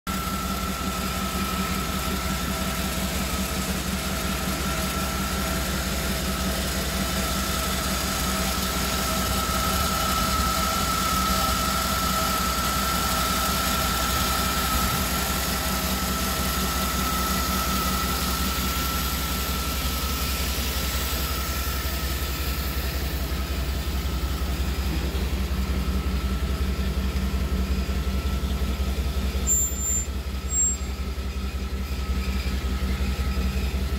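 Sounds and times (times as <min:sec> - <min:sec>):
truck engine idling: 0:00.1 - 0:33.9
high whine: 0:00.2 - 0:33.9.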